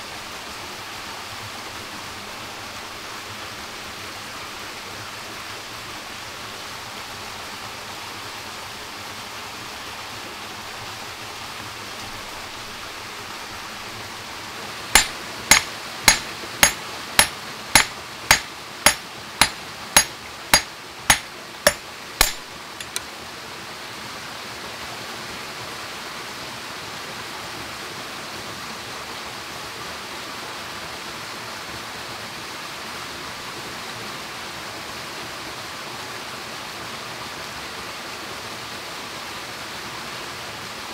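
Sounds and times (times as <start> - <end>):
stream rushing: 0.0 - 23.9
hatchet striking metal rod: 15.0 - 23.0.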